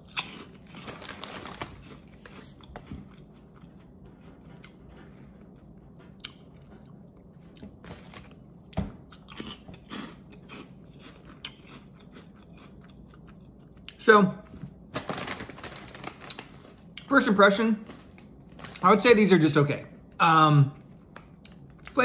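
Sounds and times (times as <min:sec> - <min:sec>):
snack crunching: 0:00.0 - 0:04.0, 0:09.0 - 0:14.0.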